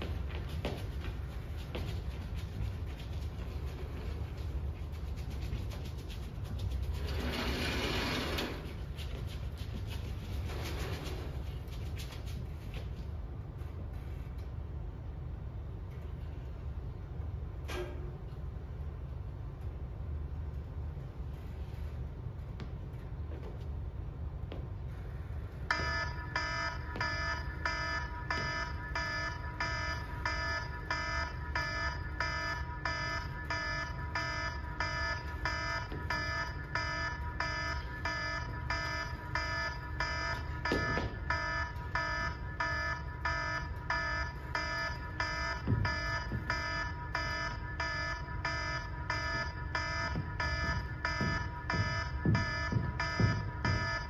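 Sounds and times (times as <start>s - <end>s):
low steady hum: 0.0s - 54.0s
pulsing electronic alarm beep: 25.7s - 54.0s.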